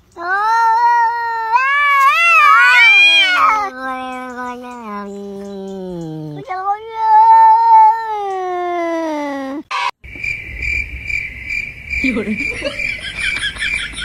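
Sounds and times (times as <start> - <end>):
cat meowing: 0.2 - 8.8.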